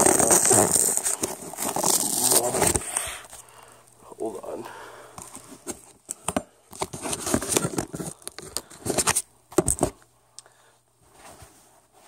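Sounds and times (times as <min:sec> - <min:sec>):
handling rustling and scraping: 0:00.0 - 0:03.6, 0:05.1 - 0:10.0, 0:11.0 - 0:12.0.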